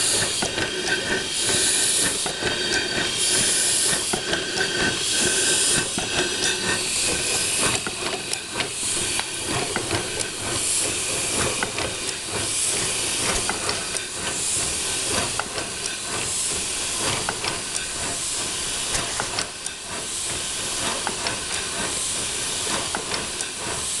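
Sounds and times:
steady hiss of steam: 0.0 - 24.0
steam puffs: 0.0 - 24.0
sharp clicks from moving rods: 18.9 - 20.0.

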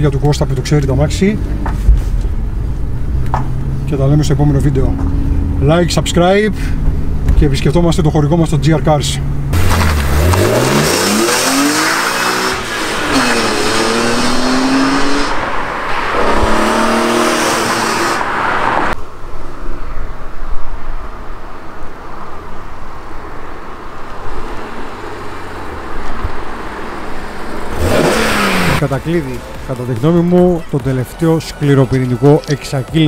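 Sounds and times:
road and wind rush: 0.0 - 33.0
car engine accelerating hard: 8.4 - 19.0, 24.4 - 29.6.

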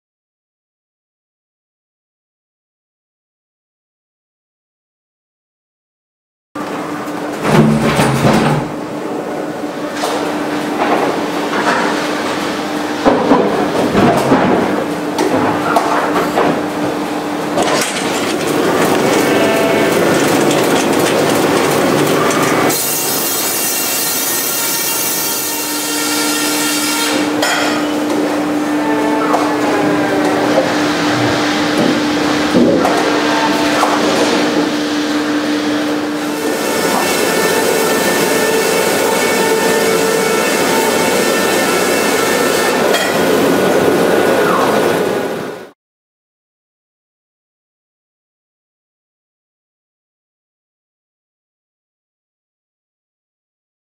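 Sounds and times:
machinery knock: 7.4 - 8.8, 17.6 - 23.0
sawmill machinery whining: 17.1 - 27.4, 35.7 - 45.4
band saw cutting log: 18.0 - 27.4, 36.2 - 43.4.

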